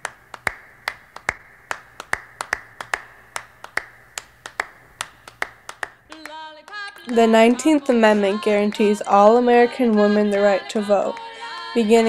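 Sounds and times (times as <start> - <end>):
sharp rhythmic claps: 0.0 - 8.9
softer claps: 0.0 - 8.9.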